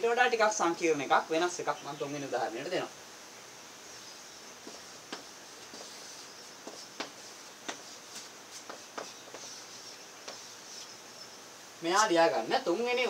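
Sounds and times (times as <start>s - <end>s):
steady low hiss: 0.0s - 13.0s
chalk tapping on blackboard: 4.6s - 10.9s.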